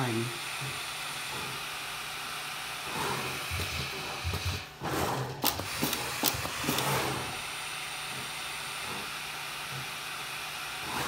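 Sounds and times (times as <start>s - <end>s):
machine whirring: 0.0s - 11.0s
sharp machine clicks: 5.4s - 7.0s.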